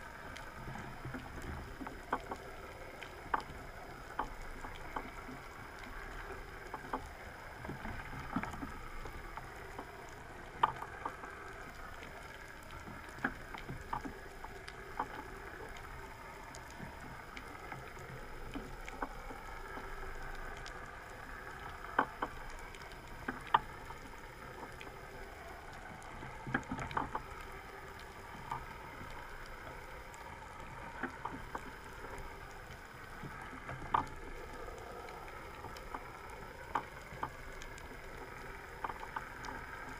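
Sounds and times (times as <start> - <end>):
underwater water noise: 0.0 - 39.9.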